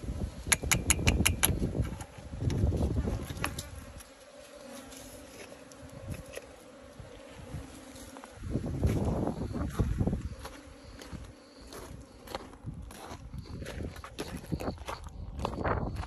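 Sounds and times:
bees buzzing: 0:00.0 - 0:16.0
sharp clicks: 0:00.5 - 0:01.6.

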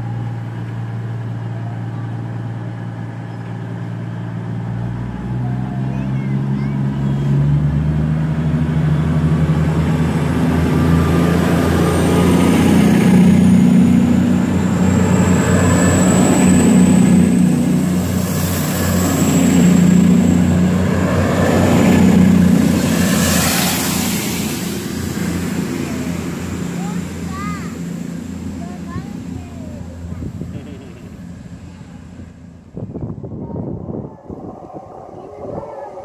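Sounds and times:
diesel train engines running: 0:00.0 - 0:36.0
high whine rising in pitch: 0:32.7 - 0:36.0.

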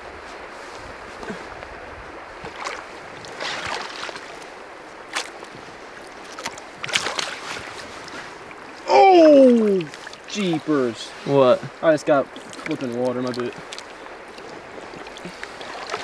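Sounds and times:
stream water running: 0:00.0 - 0:16.0
hands splashing in water: 0:02.4 - 0:04.4, 0:06.3 - 0:07.8, 0:12.3 - 0:16.0.

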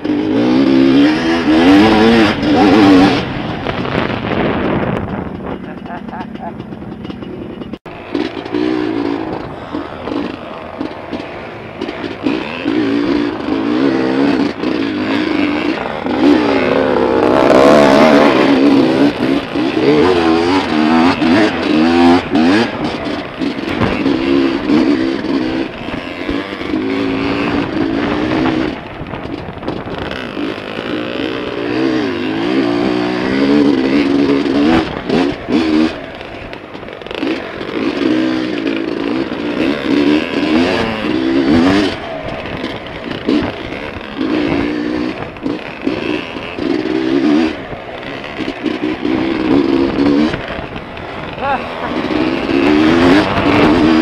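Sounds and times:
dirt bike engine revving: 0:00.0 - 0:54.0
bike knocks and rattles: 0:00.6 - 0:31.8.

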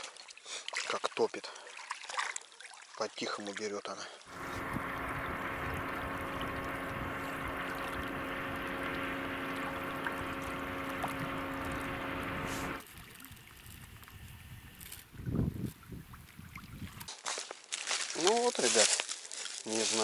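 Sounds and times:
water noise: 0:04.2 - 0:17.1
outboard motor humming: 0:04.3 - 0:14.9.

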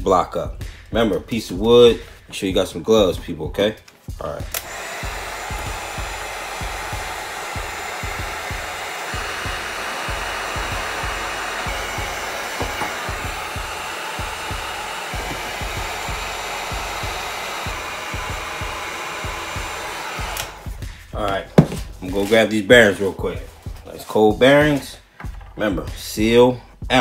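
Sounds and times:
heat gun blowing hot air: 0:04.4 - 0:22.5.

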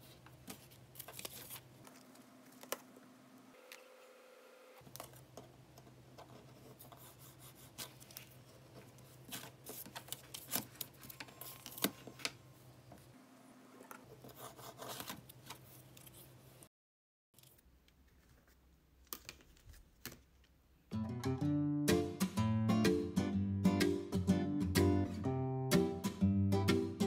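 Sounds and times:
paper rustling: 0:00.0 - 0:02.9, 0:06.1 - 0:12.4, 0:14.1 - 0:16.4.

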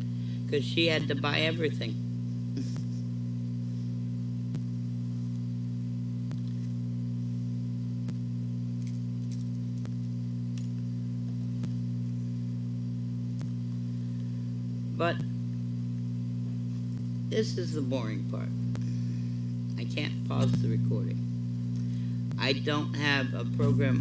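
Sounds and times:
low multi-tone hum: 0:00.0 - 0:24.0.

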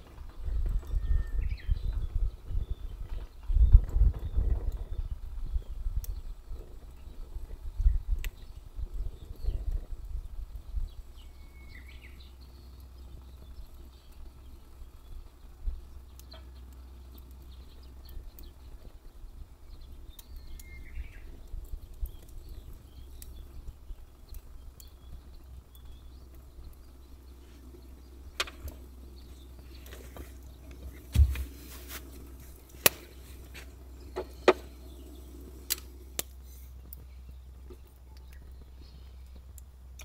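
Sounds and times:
firewood crackling in a stove: 0:00.0 - 0:40.0
sharp pops of burning wood: 0:02.9 - 0:40.0.

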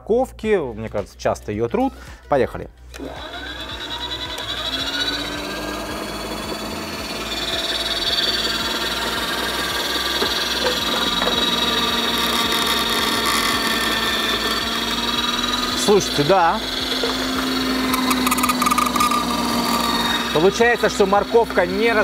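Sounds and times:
motor whine: 0:03.0 - 0:22.0
carrots grating: 0:07.8 - 0:22.0.

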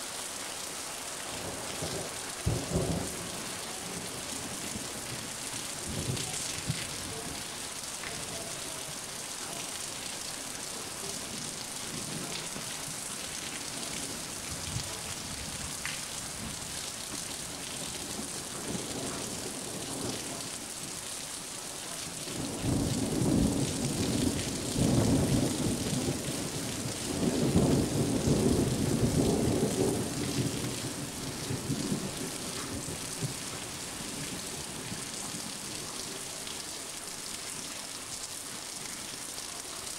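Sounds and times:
steady rain: 0:00.0 - 0:39.9
thunder rumbling: 0:01.4 - 0:09.0, 0:22.4 - 0:34.9.

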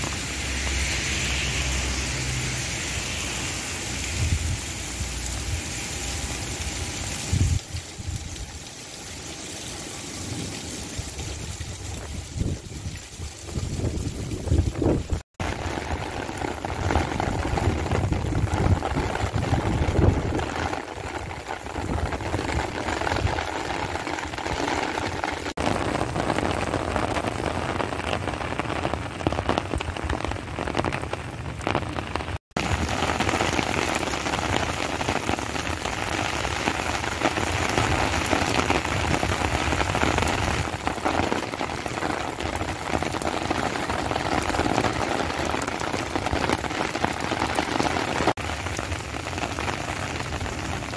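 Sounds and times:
low wind rumble: 0:00.0 - 0:08.5, 0:11.1 - 0:24.5
heavy rain on street: 0:00.0 - 0:50.9.

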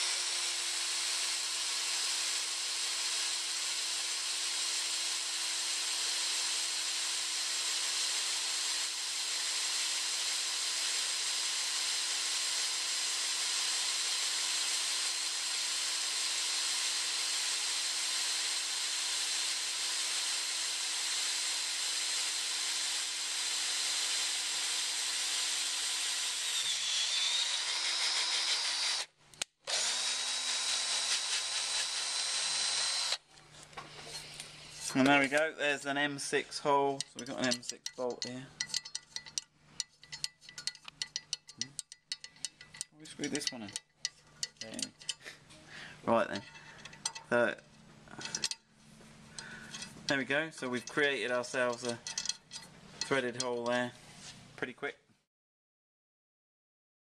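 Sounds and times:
cordless drill cutting steel: 0:00.0 - 0:33.3, 0:37.0 - 0:45.4, 0:48.1 - 0:48.7, 0:49.4 - 0:53.8.

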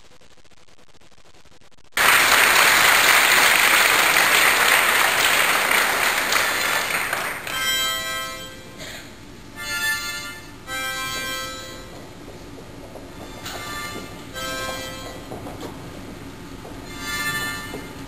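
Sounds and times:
audience applauding: 0:02.0 - 0:07.9.

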